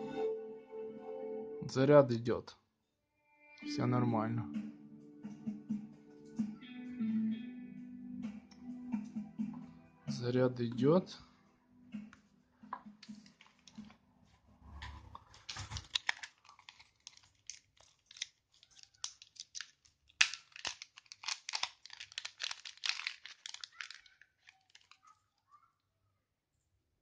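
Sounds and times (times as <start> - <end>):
plastic packet crinkling: 13.0 - 14.0, 15.2 - 25.5.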